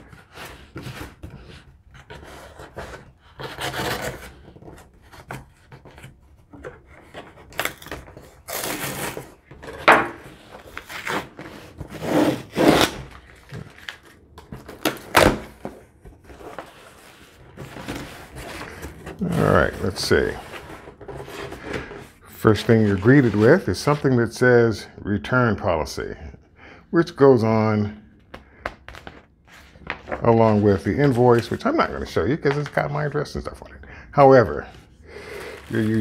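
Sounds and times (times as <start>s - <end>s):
knife scraping cardboard: 0.0s - 6.2s, 6.9s - 13.5s.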